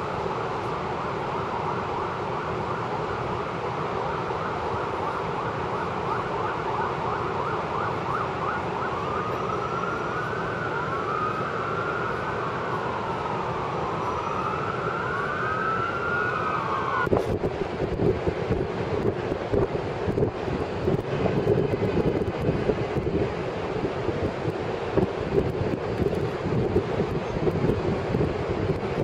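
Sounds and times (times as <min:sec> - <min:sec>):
city traffic hum: 0:00.0 - 0:29.0
emergency sirens wailing: 0:00.0 - 0:29.0
wind buffeting microphone: 0:13.9 - 0:29.0.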